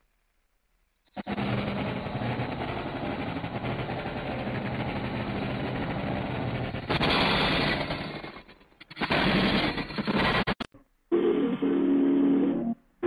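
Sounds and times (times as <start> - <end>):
steam locomotive chuffing: 1.2 - 8.4.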